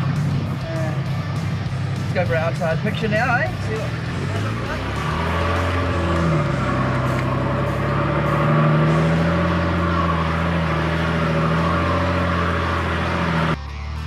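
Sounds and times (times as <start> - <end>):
truck engine at low revs: 0.0 - 14.0.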